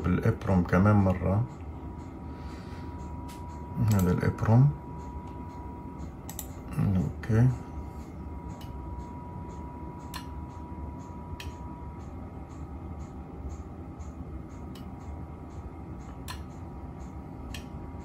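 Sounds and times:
low electrical hum: 0:00.0 - 0:18.0
soft sharp clicks: 0:03.0 - 0:04.4, 0:05.0 - 0:06.8, 0:08.5 - 0:18.0.

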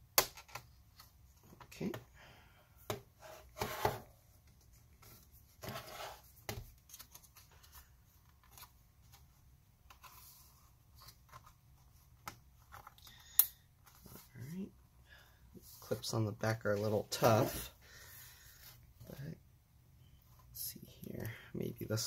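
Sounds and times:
panel scraping and rubbing: 0:03.2 - 0:04.1, 0:05.6 - 0:06.3.

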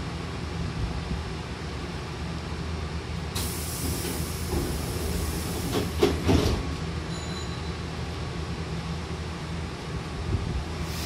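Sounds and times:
train low hum: 0:00.0 - 0:11.0
air hiss of doors: 0:03.3 - 0:06.7, 0:10.8 - 0:11.0
train doors thumping shut: 0:03.4 - 0:06.8.

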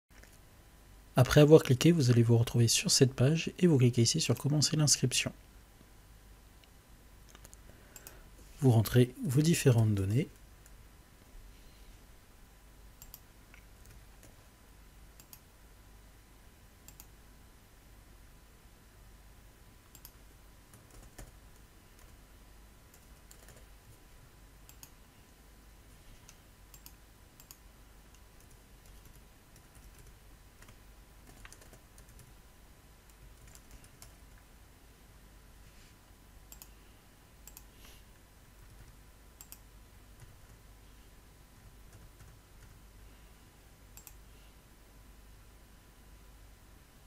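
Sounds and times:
faint steady hum: 0:00.1 - 0:47.0
mouse clicks: 0:13.0 - 0:14.3, 0:15.2 - 0:15.4, 0:16.9 - 0:17.1, 0:24.7 - 0:25.0, 0:26.2 - 0:29.1, 0:36.5 - 0:36.7, 0:37.4 - 0:37.7, 0:39.4 - 0:39.6, 0:44.0 - 0:44.2
keyboard typing: 0:13.0 - 0:14.4, 0:16.9 - 0:17.1, 0:19.9 - 0:22.2, 0:22.9 - 0:23.7, 0:24.7 - 0:25.0, 0:26.2 - 0:32.3, 0:33.1 - 0:34.2, 0:37.4 - 0:37.7, 0:38.6 - 0:39.6, 0:41.9 - 0:42.8, 0:44.0 - 0:44.2.

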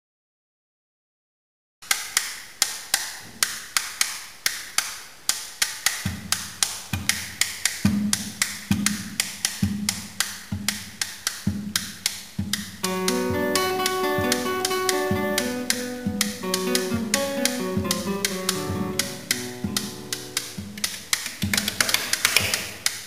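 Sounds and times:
wooden taps on guitar bodies: 0:12.4 - 0:22.7.

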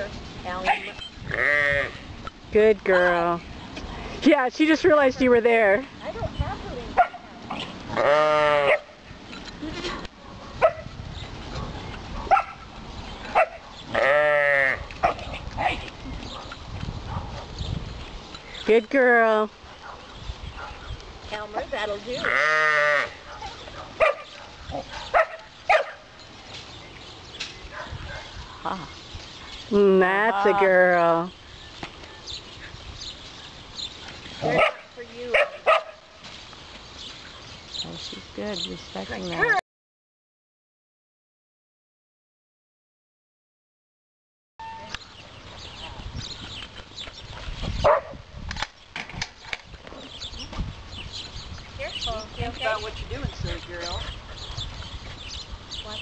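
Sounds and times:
faint outdoor background: 0:00.0 - 0:39.6, 0:44.6 - 0:56.0
dog barking: 0:07.0 - 0:07.3, 0:08.6 - 0:08.9, 0:10.2 - 0:10.9, 0:11.5 - 0:12.7, 0:13.3 - 0:13.9, 0:15.0 - 0:17.6, 0:19.7 - 0:20.9, 0:23.3 - 0:26.1, 0:27.7 - 0:28.6, 0:34.4 - 0:36.0, 0:47.8 - 0:48.2.

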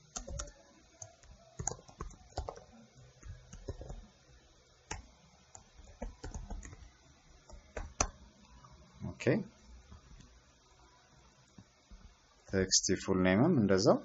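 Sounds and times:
typing on computer keyboard: 0:00.0 - 0:04.0, 0:04.9 - 0:06.9.

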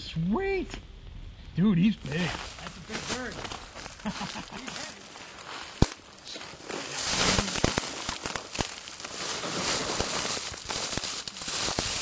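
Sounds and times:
rustling in dry leaves: 0:02.0 - 0:12.0.

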